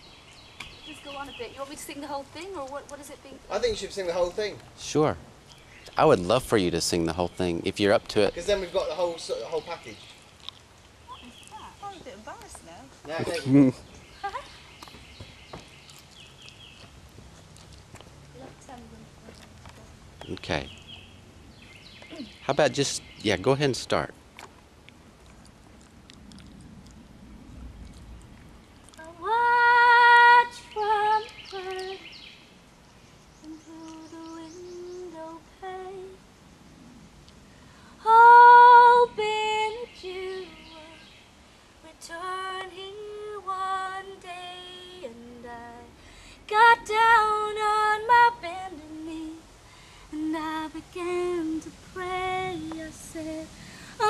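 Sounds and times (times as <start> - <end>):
woman singing unaccompanied: 0.7 - 3.5, 28.9 - 32.3, 33.4 - 36.3, 38.0 - 41.2, 41.8 - 54.0.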